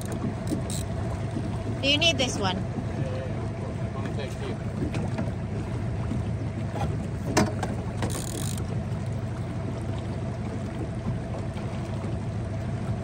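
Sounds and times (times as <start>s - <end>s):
fishing reel ratcheting buzz: 0.0s - 1.0s, 8.0s - 8.7s
boat motor humming: 0.0s - 13.0s.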